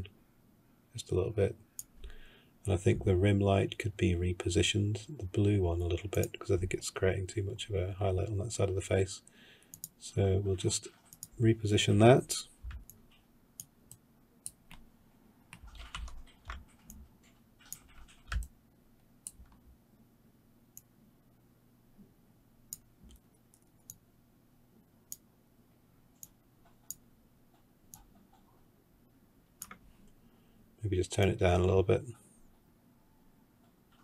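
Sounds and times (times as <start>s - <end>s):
computer mouse and keyboard clicks: 15.5s - 18.5s, 26.2s - 28.6s.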